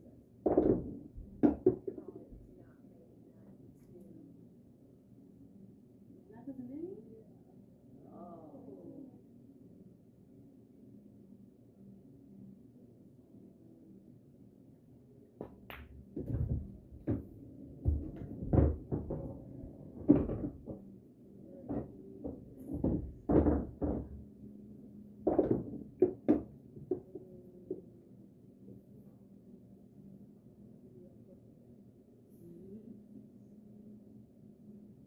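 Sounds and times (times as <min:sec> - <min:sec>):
knocks and dull thuds: 0:15.4 - 0:20.8
pool balls clicking: 0:15.4 - 0:20.9, 0:21.7 - 0:24.2, 0:25.3 - 0:27.2.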